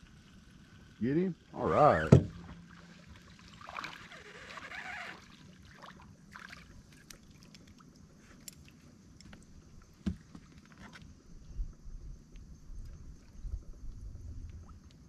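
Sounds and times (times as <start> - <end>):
thump: 2.0 - 2.6.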